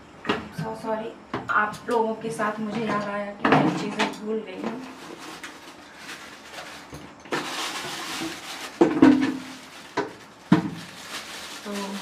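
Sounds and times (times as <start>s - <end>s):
plastic bag rustling: 4.6s - 12.0s.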